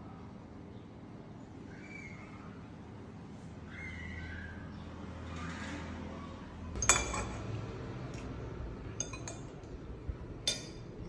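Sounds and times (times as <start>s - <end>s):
utensils clinking against dishware: 6.8s - 8.3s, 9.0s - 9.7s, 10.4s - 11.0s.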